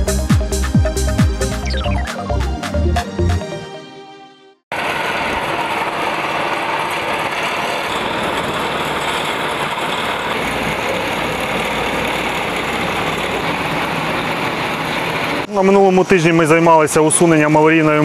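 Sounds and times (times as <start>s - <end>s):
dump truck engine running: 4.7s - 16.9s
road roller engine running: 4.7s - 17.6s
deep engine rumble: 4.8s - 15.5s.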